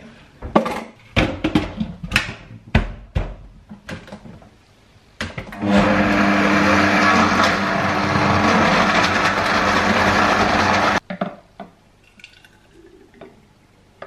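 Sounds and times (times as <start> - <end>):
blender whirring: 5.5 - 11.0.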